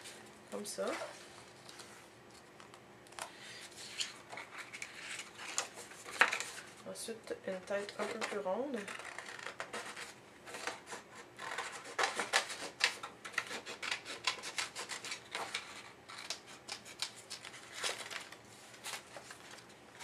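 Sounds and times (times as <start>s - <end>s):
paper rustling: 0.8s - 6.8s, 7.7s - 13.5s, 14.2s - 20.0s
scissors snipping paper: 7.7s - 19.0s.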